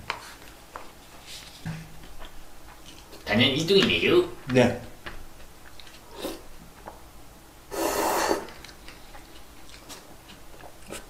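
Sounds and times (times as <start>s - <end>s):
noodle slurp: 7.7s - 8.8s.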